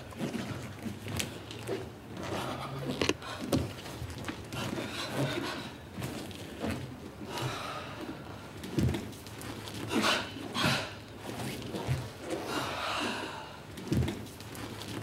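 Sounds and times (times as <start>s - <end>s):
person breathing: 12.4s - 13.7s.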